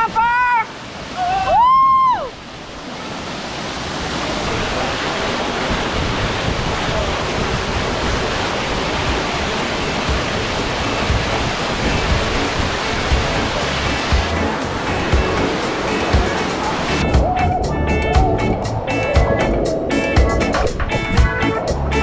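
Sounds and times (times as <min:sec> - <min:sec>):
waterfall splashing into pool: 0:00.0 - 0:17.4.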